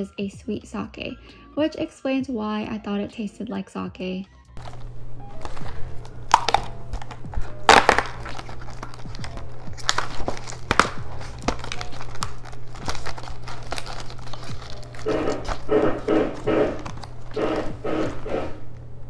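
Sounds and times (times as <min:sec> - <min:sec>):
cardboard box crinkling and tearing: 0:06.3 - 0:16.1.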